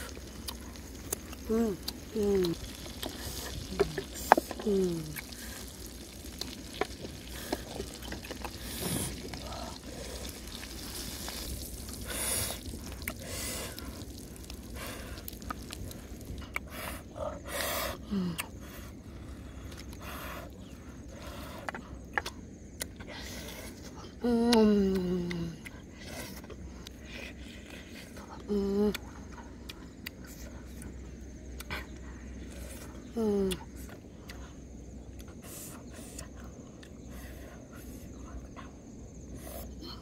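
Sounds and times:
steady low background noise: 0:00.0 - 0:40.0
woman humming mmm: 0:01.1 - 0:05.5, 0:18.0 - 0:18.5, 0:24.2 - 0:25.7, 0:33.1 - 0:33.7.

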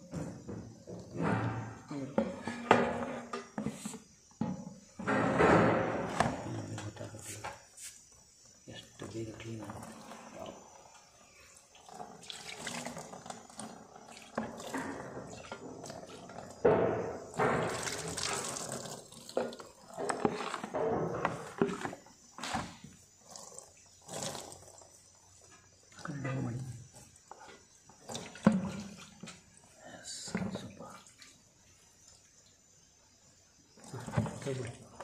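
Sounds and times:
liquid splashing into tub: 0:11.6 - 0:25.1, 0:28.0 - 0:31.5, 0:33.7 - 0:35.0
liquid pouring from glass jar: 0:17.3 - 0:20.6.

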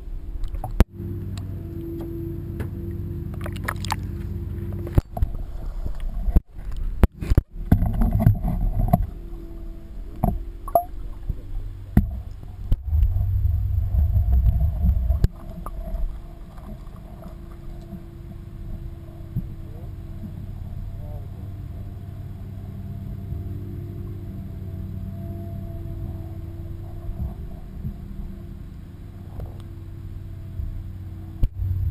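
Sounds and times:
muffled underwater rumble: 0:00.0 - 0:31.9
water sloshing and gurgling: 0:00.0 - 0:31.9.

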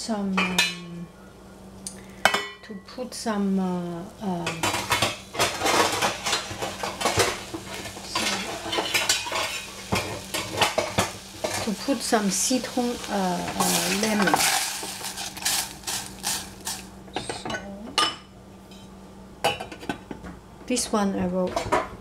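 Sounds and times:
dishes and cutlery clattering: 0:04.5 - 0:07.4, 0:08.1 - 0:11.7.

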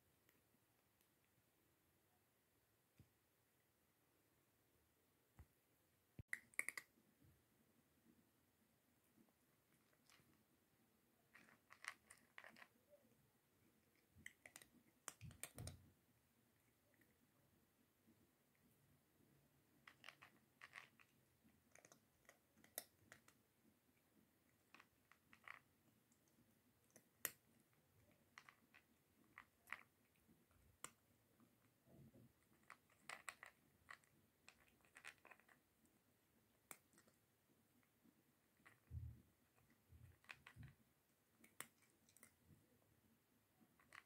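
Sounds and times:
cat chewing dry kibble: 0:11.2 - 0:12.8, 0:13.6 - 0:15.9, 0:19.7 - 0:23.4, 0:24.0 - 0:42.8.

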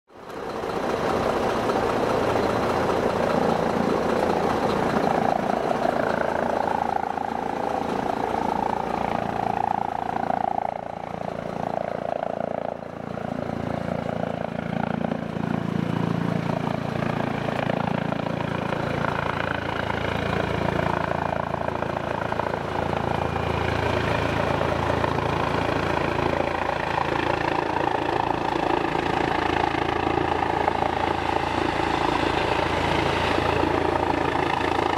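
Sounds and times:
helicopter rotor noise: 0:00.1 - 0:34.9
engine idling: 0:00.2 - 0:15.0.

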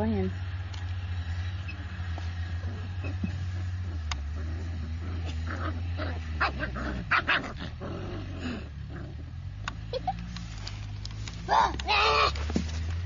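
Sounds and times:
puppies growling: 0:02.5 - 0:09.4.

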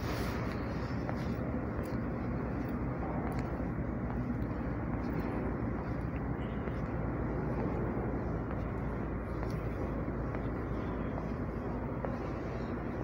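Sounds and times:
railway platform background rumble: 0:00.0 - 0:13.0.

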